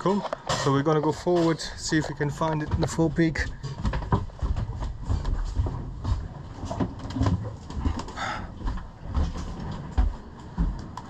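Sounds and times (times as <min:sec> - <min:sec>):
footsteps: 0:00.0 - 0:11.0.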